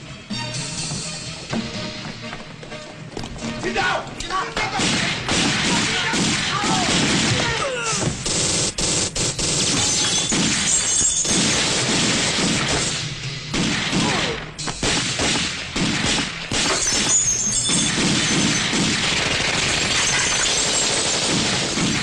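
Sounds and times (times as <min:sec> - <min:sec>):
pistol shots: 0:04.6 - 0:22.0
glass shattering and crashing: 0:09.7 - 0:11.6, 0:16.6 - 0:18.6, 0:19.8 - 0:21.2.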